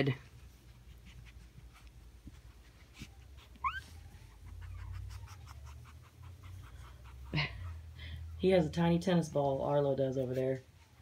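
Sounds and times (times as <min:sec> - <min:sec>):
puppy squeaking: 0:02.9 - 0:08.4.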